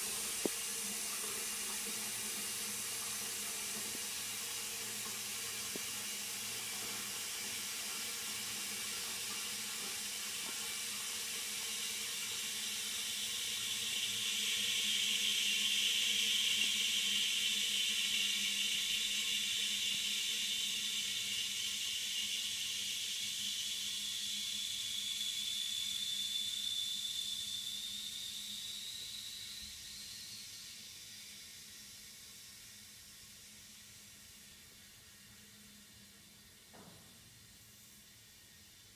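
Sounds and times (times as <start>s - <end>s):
cistern refilling water hiss: 0.0s - 38.9s.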